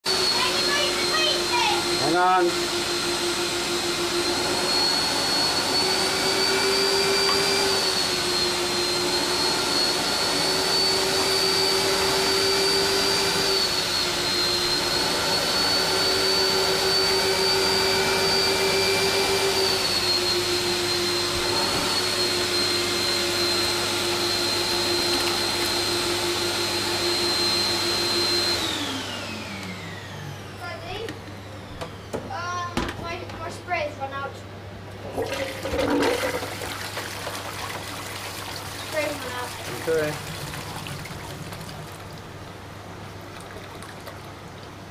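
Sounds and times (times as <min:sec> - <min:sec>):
vacuum motor whine: 0:00.1 - 0:32.3.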